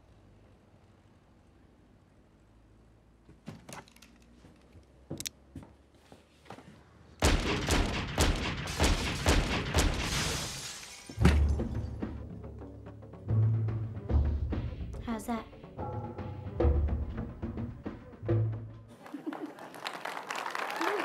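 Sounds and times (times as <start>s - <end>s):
gun clicks and knocks: 3.5s - 5.4s
rapid handgun shots: 7.2s - 10.8s.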